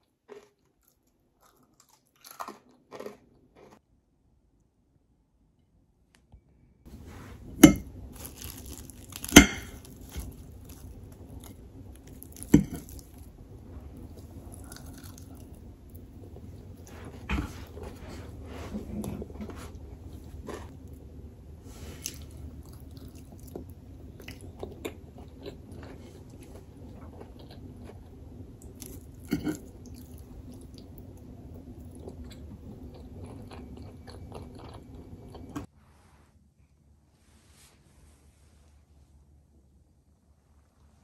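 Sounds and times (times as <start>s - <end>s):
person chewing food: 0.0s - 3.8s, 7.4s - 21.0s, 22.0s - 35.7s
steady low hum: 6.2s - 41.0s.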